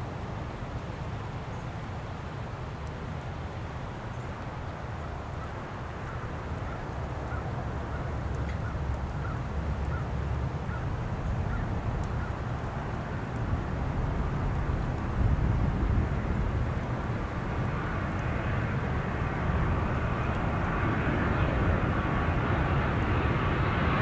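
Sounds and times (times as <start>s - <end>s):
jet engine rumble: 5.8s - 24.0s.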